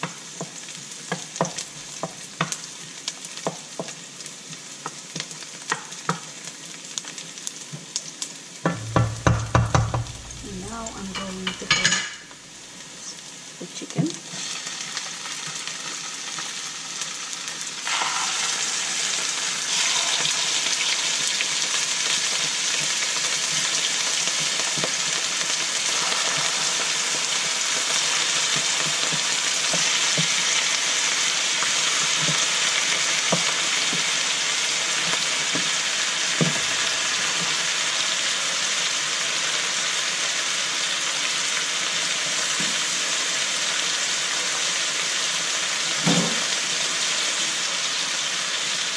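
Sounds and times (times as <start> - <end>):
chicken sizzling in hot oil: 0.0 - 48.9.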